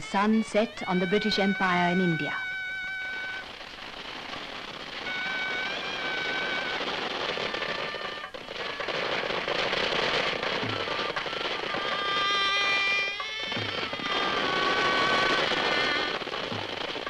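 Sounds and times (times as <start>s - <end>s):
dense crackling noise: 0.0s - 17.0s.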